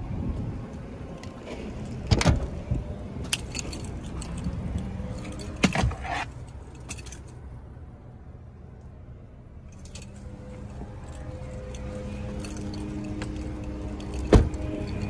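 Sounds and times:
car door opening clunk: 1.5s - 2.6s, 12.2s - 15.0s.

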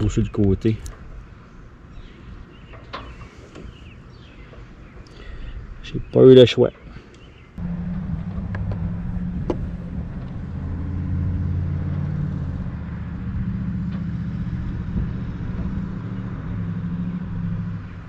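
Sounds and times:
engine droning: 7.6s - 18.0s.

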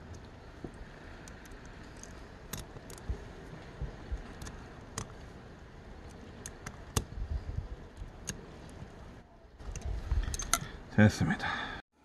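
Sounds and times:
small metal parts clicking: 1.2s - 3.1s, 9.6s - 10.8s
low thumps: 2.6s - 4.5s.

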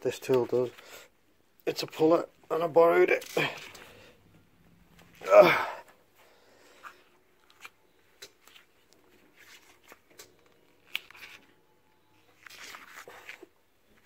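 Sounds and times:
gloved hands rustling: 6.7s - 11.6s, 12.2s - 14.0s.

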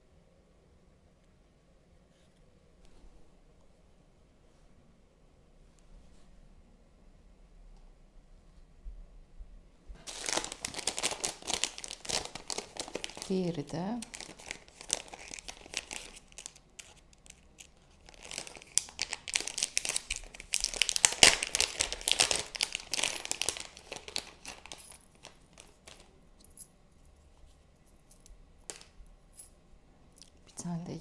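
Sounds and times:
plastic bags crinkling: 10.0s - 26.2s.

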